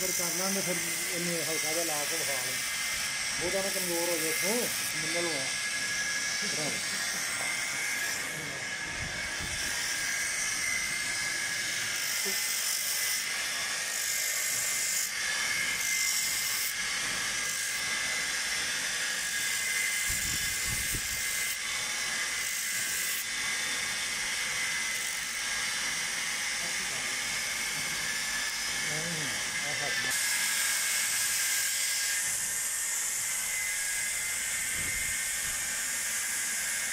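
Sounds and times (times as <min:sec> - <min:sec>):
sanding wheel whine: 0:00.0 - 0:36.9
wood pressed on sanding wheel: 0:03.3 - 0:13.2.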